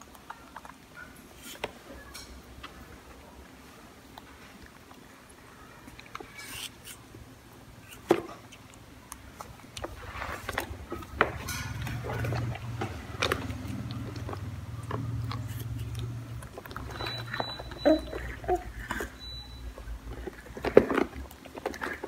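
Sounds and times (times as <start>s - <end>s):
low steady hum: 0.0s - 22.0s
monkey biting apple: 11.8s - 19.2s.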